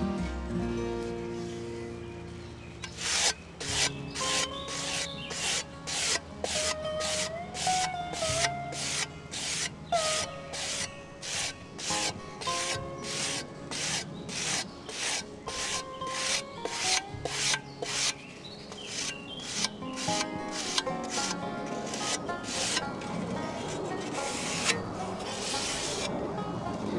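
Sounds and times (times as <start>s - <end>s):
sanding block rubbing metal blade: 2.8s - 22.8s, 23.6s - 26.1s.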